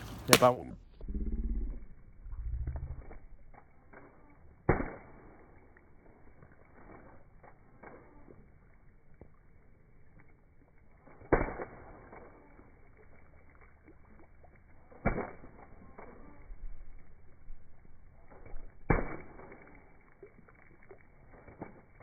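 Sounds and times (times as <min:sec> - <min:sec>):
footsteps on wet ground: 0:00.0 - 0:00.6, 0:02.7 - 0:22.0
sneaker splashing into puddles: 0:00.0 - 0:00.6, 0:03.0 - 0:09.3, 0:18.2 - 0:22.0.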